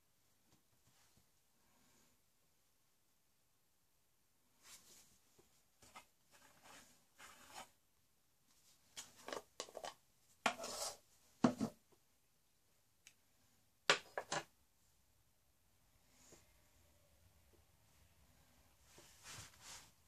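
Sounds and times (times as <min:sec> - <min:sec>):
small objects scraping: 0:05.9 - 0:07.7, 0:09.0 - 0:11.0.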